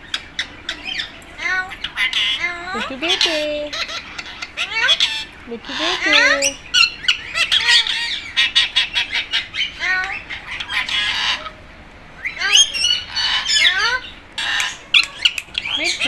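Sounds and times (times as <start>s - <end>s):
parakeets chattering and squawking: 0.0s - 16.0s.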